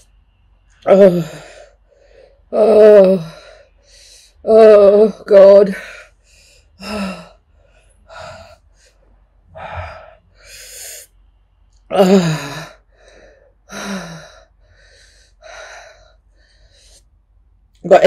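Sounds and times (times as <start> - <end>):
woman moaning: 0.9 - 1.7, 2.5 - 3.6, 4.4 - 6.0, 6.8 - 7.4, 11.9 - 12.8
woman panting heavily: 1.0 - 4.4, 5.6 - 11.1, 12.0 - 17.0.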